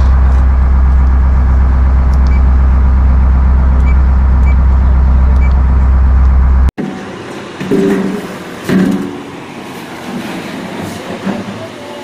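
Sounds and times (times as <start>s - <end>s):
boat diesel engine drone: 0.0s - 7.2s.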